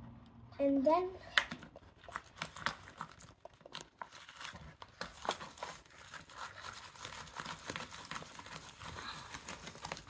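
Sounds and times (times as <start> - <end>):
stick stirring sticky slime: 1.2 - 10.0.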